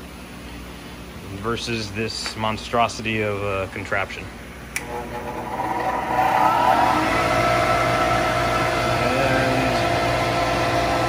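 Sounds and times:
exhaust blower whining and humming: 0.0s - 11.0s.

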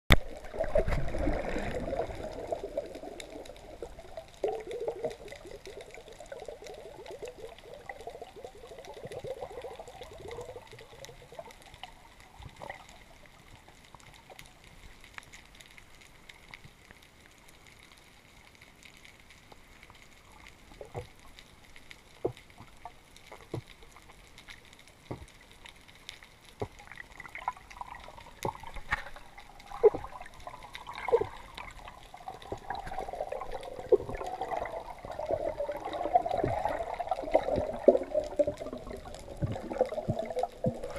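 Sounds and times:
water bubbling underwater: 0.1s - 14.7s, 26.5s - 40.9s.

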